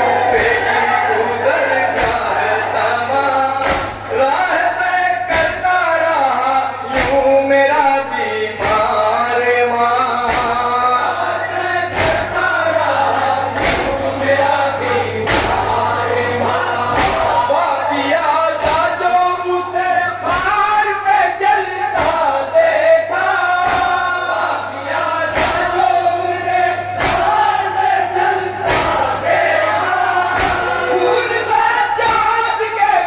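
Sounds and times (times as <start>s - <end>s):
men chanting through loudspeaker: 0.0s - 33.0s
chest-beating slaps: 1.9s - 2.4s, 3.6s - 4.1s, 6.9s - 7.3s, 8.6s - 9.0s, 10.3s - 10.6s, 11.9s - 12.4s, 13.5s - 14.1s, 15.2s - 15.8s, 16.9s - 17.4s, 22.0s - 22.3s, 23.6s - 24.1s, 25.3s - 25.8s, 27.0s - 27.4s, 28.6s - 29.2s, 30.3s - 30.8s.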